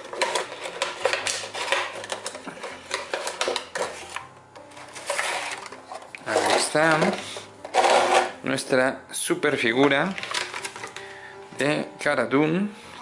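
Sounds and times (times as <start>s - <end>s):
cardboard and plastic crinkling: 0.0s - 8.4s, 10.0s - 11.1s
plastic tray sliding out: 4.8s - 8.4s.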